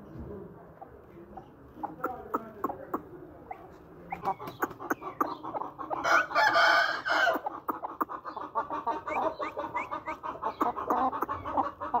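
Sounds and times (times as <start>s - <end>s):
chickens clucking: 0.0s - 12.0s
rooster crowing: 6.0s - 7.4s.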